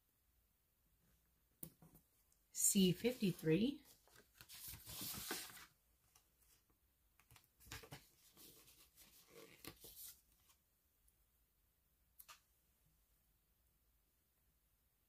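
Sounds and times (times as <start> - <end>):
paper sheet rustling: 3.0 - 5.8, 7.6 - 10.2.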